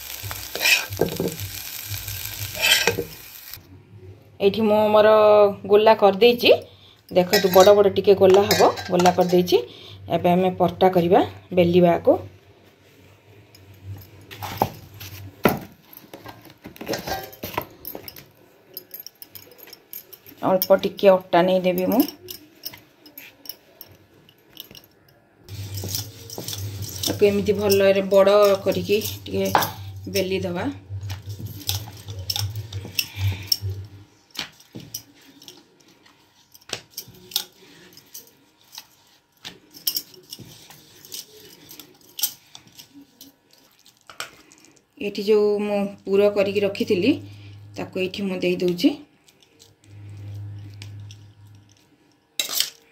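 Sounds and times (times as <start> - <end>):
bangles clinking: 6.5 - 9.6, 17.0 - 44.9, 49.3 - 52.9
low hum: 25.5 - 34.2, 49.8 - 51.8.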